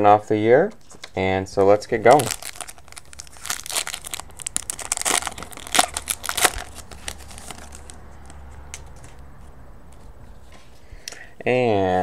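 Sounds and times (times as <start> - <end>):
foil wrapper crinkling: 2.0 - 8.0.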